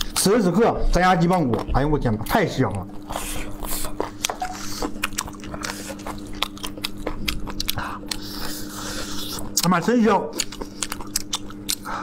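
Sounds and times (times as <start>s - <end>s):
chewing crunchy chicken bones: 0.0s - 12.0s.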